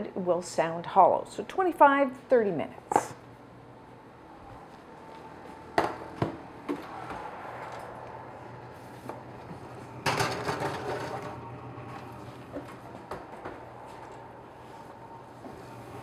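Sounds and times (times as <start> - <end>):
steady hum: 0.0 - 16.0
metal pans clattering on wire rack: 10.0 - 11.3.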